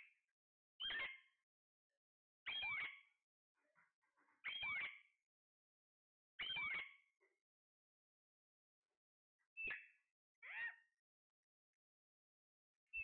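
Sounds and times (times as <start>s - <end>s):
parakeet calling: 2.5s - 3.1s, 4.4s - 5.1s, 6.4s - 7.0s, 9.6s - 10.9s.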